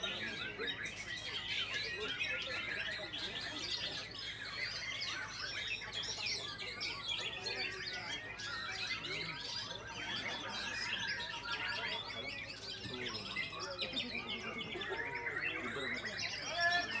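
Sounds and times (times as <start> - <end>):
songbirds chorus: 0.0 - 17.0.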